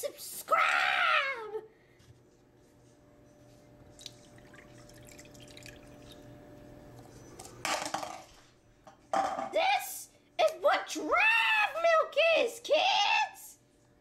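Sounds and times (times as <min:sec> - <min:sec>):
liquid pouring rush: 0:04.0 - 0:06.2
milk dripping into a bowl: 0:04.0 - 0:06.3.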